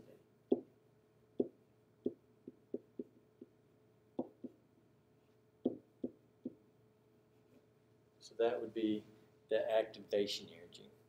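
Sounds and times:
faint steady hum: 0.0s - 11.0s
pen tapping on whiteboard: 0.5s - 0.7s, 1.4s - 3.6s, 4.2s - 4.6s, 5.6s - 6.6s.

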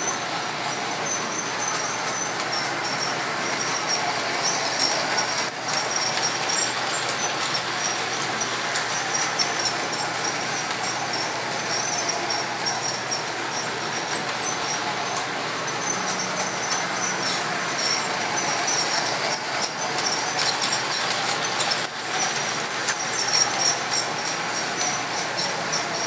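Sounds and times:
model train wheels rumbling: 0.0s - 26.0s
high-pitched squeaks: 11.2s - 26.0s.

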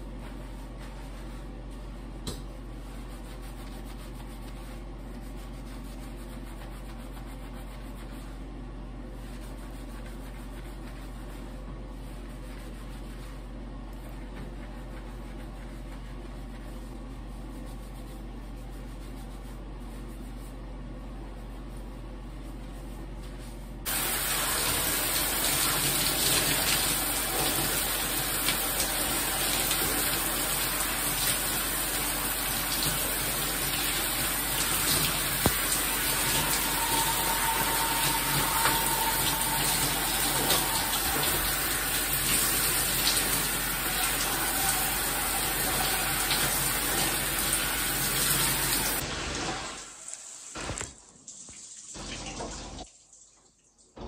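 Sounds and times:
shower spray on hair: 23.9s - 52.5s.

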